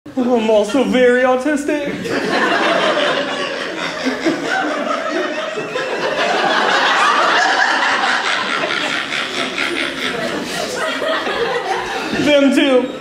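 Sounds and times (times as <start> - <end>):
audience laughing: 2.0 - 13.0
woman laughing: 6.9 - 12.1.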